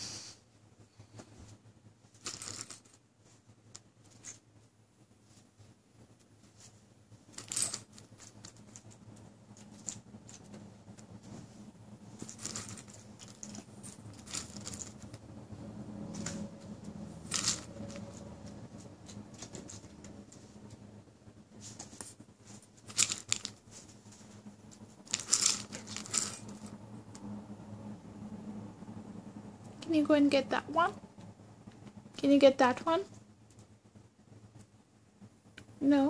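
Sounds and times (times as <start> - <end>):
fabric toy rustling and crinkling: 1.4 - 4.4, 11.2 - 15.2, 17.2 - 18.2, 21.6 - 26.7.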